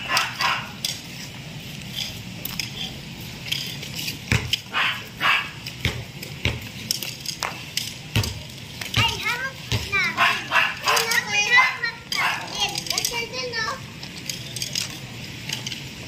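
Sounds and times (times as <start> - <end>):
dog barking: 0.1 - 0.8, 4.7 - 5.6, 10.1 - 12.6.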